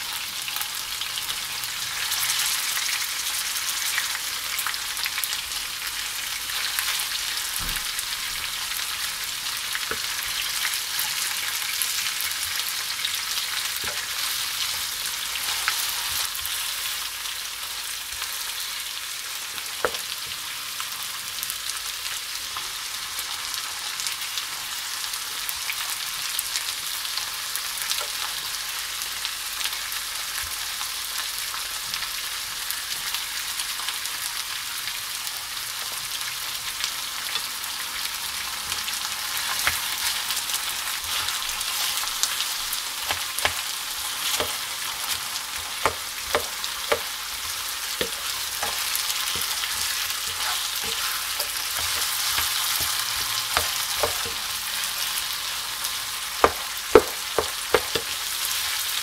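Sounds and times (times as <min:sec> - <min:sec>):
food sizzling in oil: 0:00.0 - 0:59.0
spatula knocking against pan: 0:45.8 - 0:47.1, 0:56.4 - 0:58.1.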